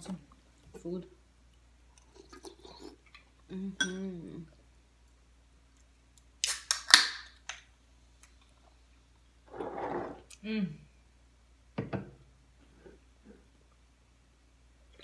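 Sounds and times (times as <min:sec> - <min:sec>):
soda can opening with fizz: 0:06.4 - 0:07.4.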